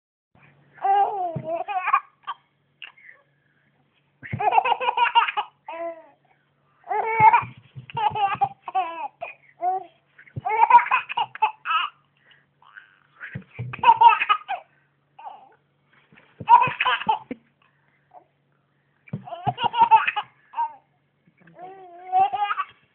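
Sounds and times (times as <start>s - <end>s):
baby laughing: 0.8s - 3.0s, 4.2s - 6.0s, 6.9s - 9.8s, 10.4s - 12.0s, 12.6s - 14.6s, 16.4s - 17.4s, 19.2s - 20.8s, 22.0s - 22.8s.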